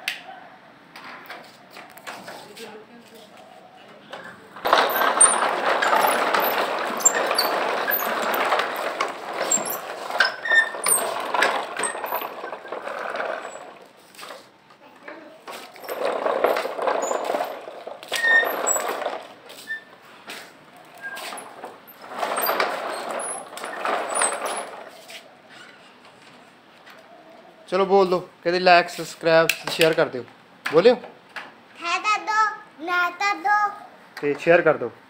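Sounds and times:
toy tractor rattling over bricks: 4.2 - 14.5, 15.4 - 19.8, 20.8 - 25.1.

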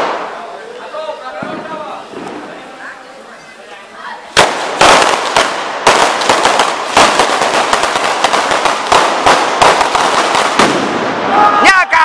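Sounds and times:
firecracker string bangs: 0.0 - 0.5, 1.3 - 2.7, 4.3 - 11.4.

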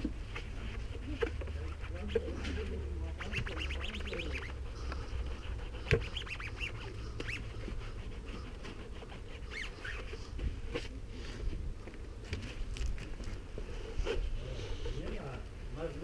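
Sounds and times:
wet sponge squeaking on bodywork: 0.0 - 10.9.

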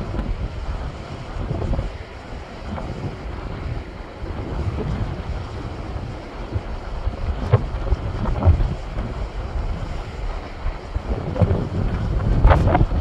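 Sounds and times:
surf breaking over rocks: 0.0 - 13.0
wind buffeting microphone: 0.0 - 13.0.

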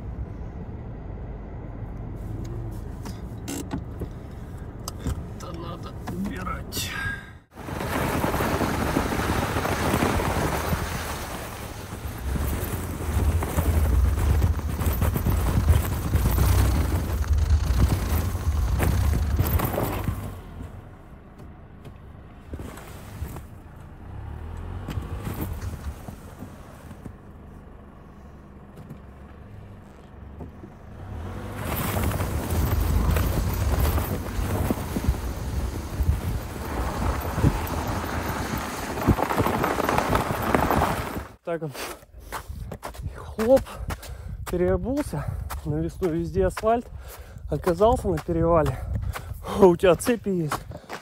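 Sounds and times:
chained tyres rolling over snow: 5.3 - 21.1, 22.4 - 28.4, 29.0 - 51.0
tyre chain clicks and crunches: 9.1 - 20.4, 31.6 - 41.3.

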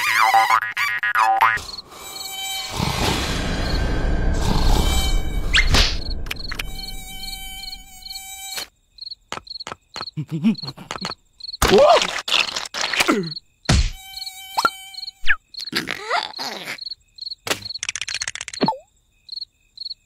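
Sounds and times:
cartoon mosquito buzzing: 0.0 - 3.8, 4.4 - 8.7, 12.3 - 18.8
low rumble: 2.8 - 8.0
sharp clicks: 17.5 - 18.8.

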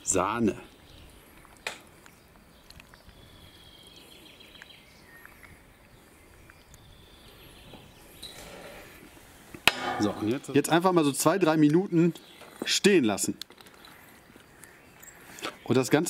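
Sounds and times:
faint bird chirps: 13.7 - 16.0.

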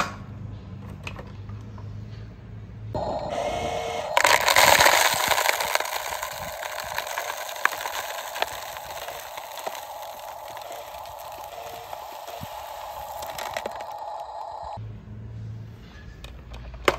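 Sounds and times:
gravel pouring over rock: 4.1 - 14.8
single stones clicking: 4.1 - 14.8.

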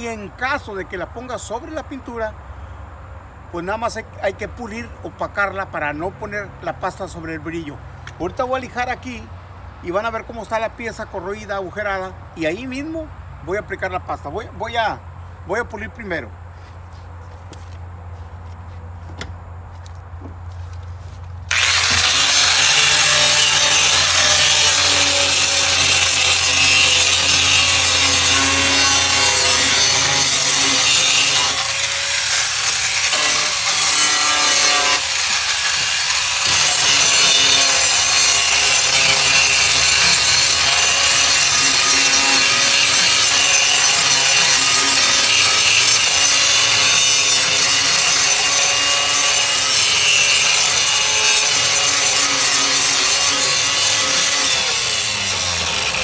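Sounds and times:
angle grinder grinding metal: 21.5 - 56.0.

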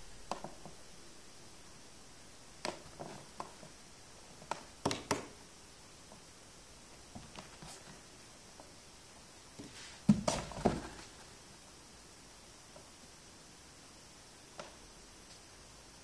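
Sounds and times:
taps on cardboard box: 4.4 - 5.3, 10.1 - 11.0.

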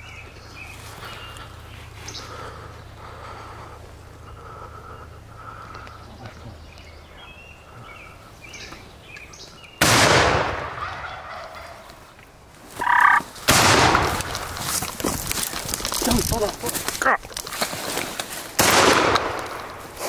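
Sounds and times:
shotgun blasts: 9.8 - 10.8, 13.5 - 14.1, 18.6 - 19.6
turkey gobbling: 10.8 - 12.1, 12.7 - 13.3.

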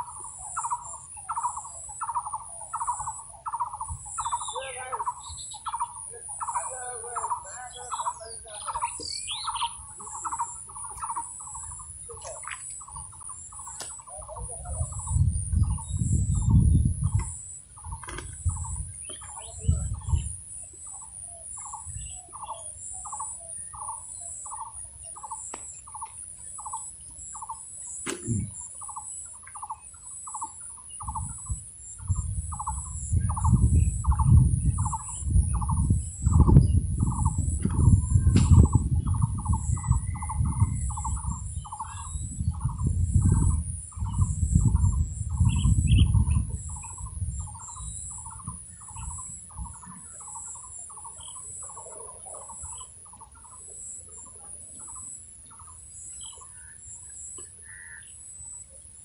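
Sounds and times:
bird repeating call note: 0.0 - 31.4, 32.1 - 58.6
low rumble in gusts: 14.4 - 20.3, 31.0 - 49.9.

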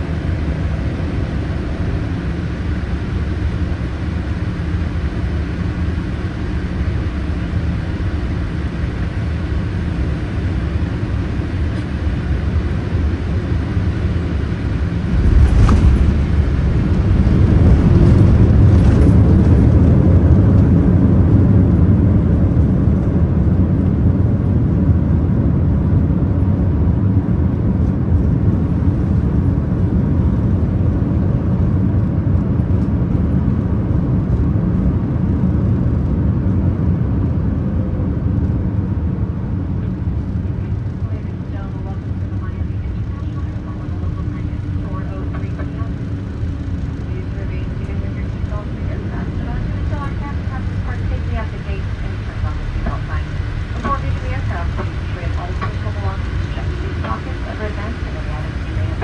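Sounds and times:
airliner cabin rumble: 0.0 - 59.0
landing rollout rumble: 14.8 - 20.2.

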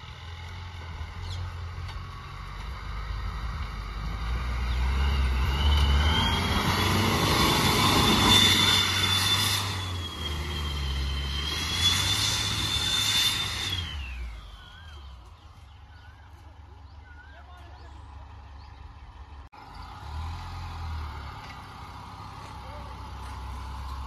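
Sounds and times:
diesel engine revving hard: 0.0 - 15.0, 18.2 - 24.0
dirt hissing from spinning tyres: 0.0 - 16.2, 19.6 - 24.0
high turbo whine: 0.0 - 16.4.

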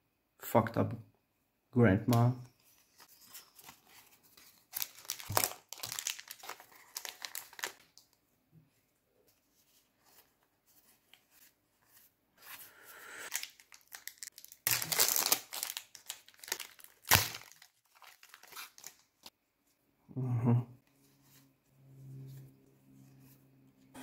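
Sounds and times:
foil wrapper tearing and crinkling: 4.4 - 7.8, 13.3 - 19.3
low vocal hum: 20.1 - 20.7.

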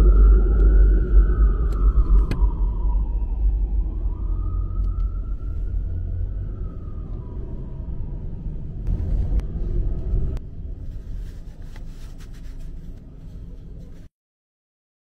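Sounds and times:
car rumble heard from inside: 7.0 - 14.1.

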